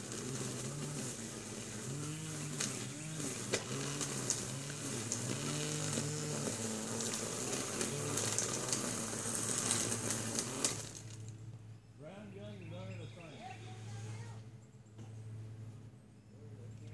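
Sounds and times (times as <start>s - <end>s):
trimmer line hissing through weeds: 0.0s - 11.4s
string trimmer engine running: 0.0s - 11.7s.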